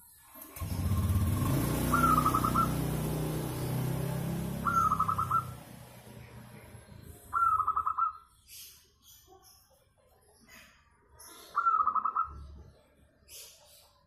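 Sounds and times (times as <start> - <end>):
dove cooing: 1.4 - 2.9, 4.6 - 5.6, 7.3 - 8.2.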